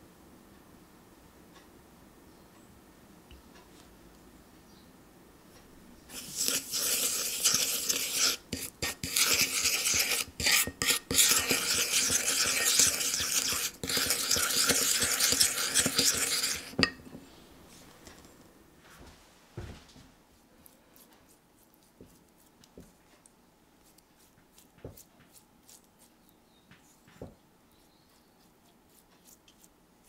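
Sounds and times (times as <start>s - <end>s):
wooden spoon scraping a pan: 6.1s - 17.2s.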